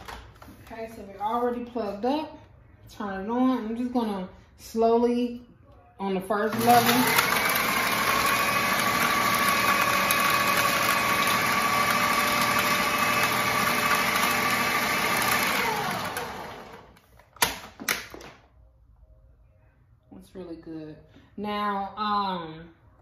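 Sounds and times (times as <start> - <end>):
food processor whining: 6.5 - 17.0.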